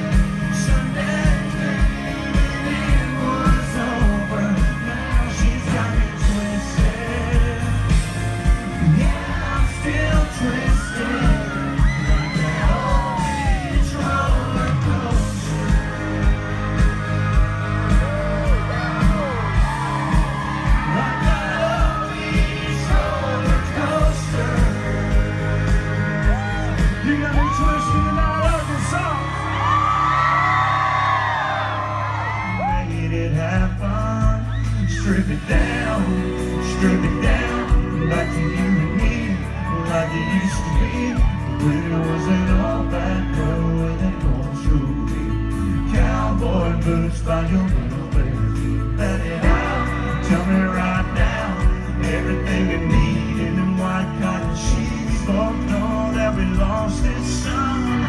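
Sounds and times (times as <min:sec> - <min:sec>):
man singing into microphone: 0:00.0 - 0:16.9, 0:17.9 - 0:58.0
drum beat: 0:00.0 - 0:28.9
fans yelling and whooping: 0:00.0 - 0:58.0
live country band music: 0:00.0 - 0:58.0.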